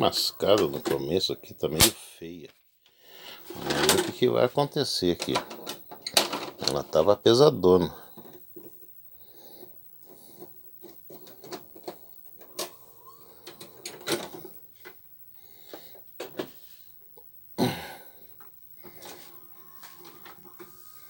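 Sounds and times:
vcr mechanism clicks and clunks: 0.0 - 2.6, 3.4 - 8.5, 10.4 - 15.0.

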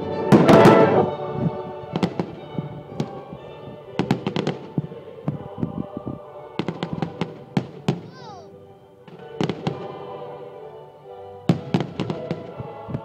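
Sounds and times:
music playing: 0.0 - 13.0
fireworks banging and crackling: 0.3 - 1.0, 1.9 - 3.3, 4.0 - 5.4, 6.6 - 8.2, 9.1 - 9.9, 11.5 - 13.0.

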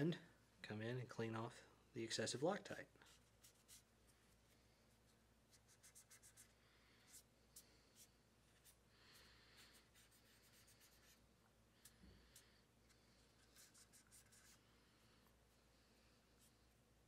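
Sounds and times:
cotton swab scratching and rubbing: 3.0 - 15.4.

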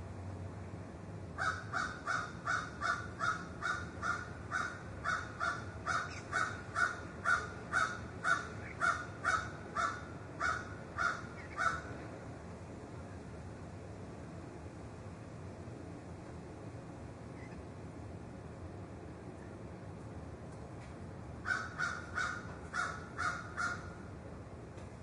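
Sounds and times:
crow cawing: 1.4 - 11.9, 21.4 - 24.0.

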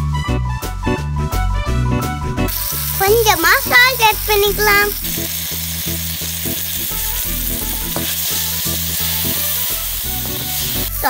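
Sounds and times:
vegetables sizzling in hot oil: 2.5 - 11.0
low rhythmic beat: 6.5 - 8.2.

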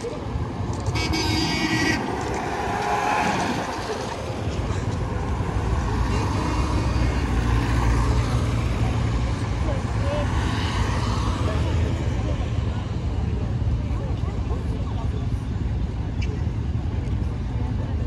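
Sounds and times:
cars driving past: 0.0 - 13.9.

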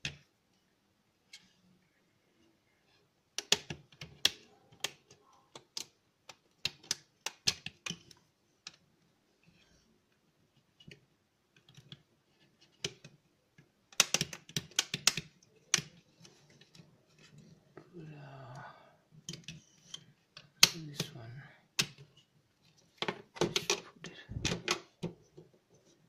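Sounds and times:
clicks and taps handling circuit board: 3.4 - 8.8, 9.5 - 17.8, 19.2 - 20.8, 21.8 - 26.0.

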